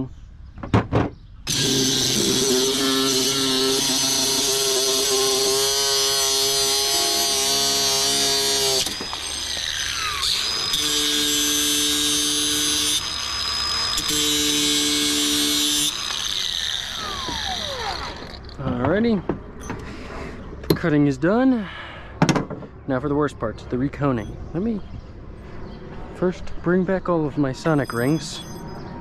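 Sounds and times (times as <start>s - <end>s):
angle grinder cutting steel: 1.5s - 18.6s.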